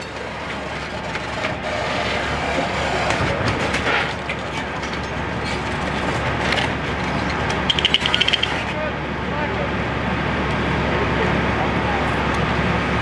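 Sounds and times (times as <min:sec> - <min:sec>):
vehicle engine idling: 0:04.4 - 0:13.0.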